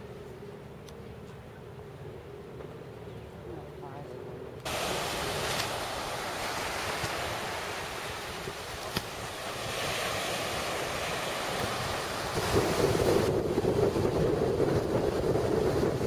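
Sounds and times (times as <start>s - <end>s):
wind buffeting microphone: 4.6s - 16.0s
surf breaking on beach: 4.7s - 16.0s.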